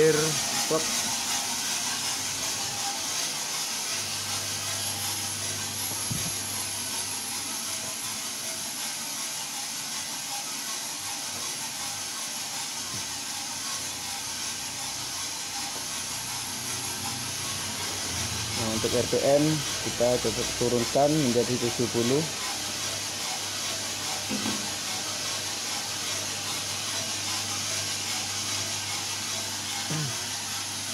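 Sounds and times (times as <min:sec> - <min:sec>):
electric motor hum: 0:00.0 - 0:09.1, 0:12.7 - 0:30.9
burner and airflow hiss: 0:00.0 - 0:30.9.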